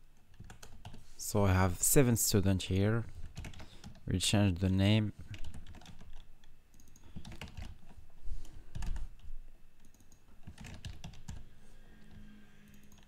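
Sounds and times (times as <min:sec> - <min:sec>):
typing on a computer keyboard: 0:00.2 - 0:01.0, 0:03.2 - 0:04.0, 0:05.3 - 0:08.0, 0:08.7 - 0:11.5, 0:12.7 - 0:13.0.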